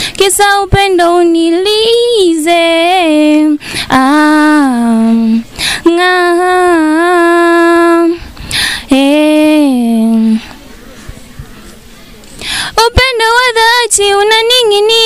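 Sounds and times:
person singing unaccompanied: 0:00.0 - 0:10.6, 0:12.5 - 0:15.0
breaths between notes: 0:03.6 - 0:03.9, 0:05.4 - 0:05.9, 0:08.2 - 0:08.9, 0:10.4 - 0:12.8.

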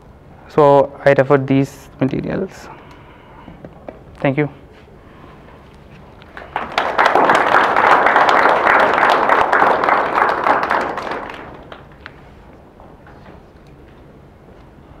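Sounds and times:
audience applauding: 0:06.3 - 0:12.2.

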